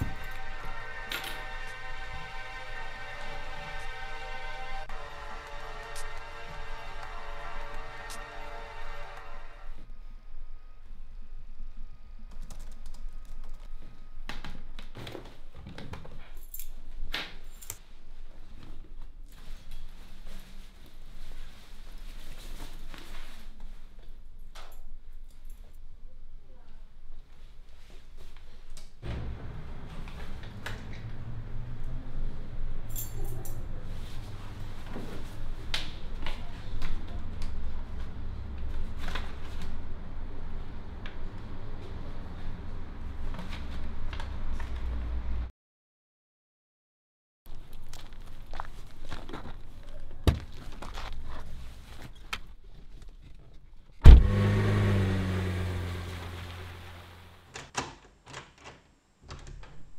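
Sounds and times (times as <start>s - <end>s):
steady low drone: 0.0s - 11.4s
keys jingling: 16.4s - 16.8s, 32.9s - 33.7s.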